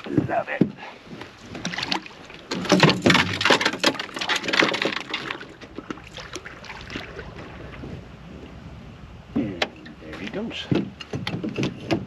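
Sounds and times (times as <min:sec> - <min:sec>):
water splashing: 0:00.0 - 0:08.8.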